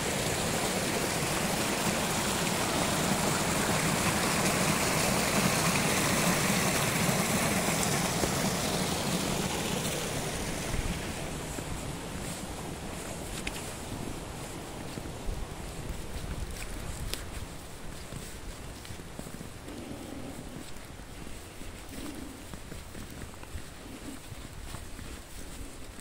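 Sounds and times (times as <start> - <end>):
stream running over stones: 0.0 - 19.7.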